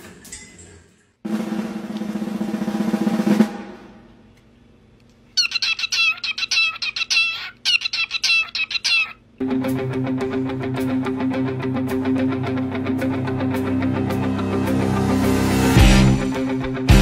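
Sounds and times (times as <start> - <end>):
cockatiel chirping and whistling: 5.4 - 9.2
guitar music: 9.4 - 17.0.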